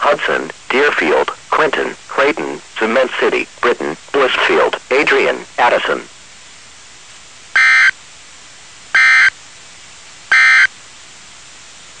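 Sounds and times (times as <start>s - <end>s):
radio hiss: 0.0s - 6.3s.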